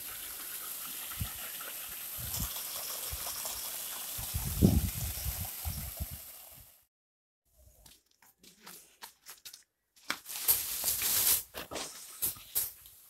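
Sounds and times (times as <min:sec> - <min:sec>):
gushing water: 0:00.0 - 0:06.8.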